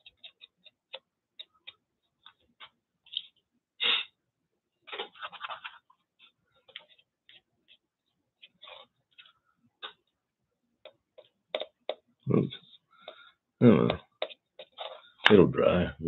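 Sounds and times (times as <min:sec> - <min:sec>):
paintbrush dabbing on paper: 0:14.0 - 0:15.1.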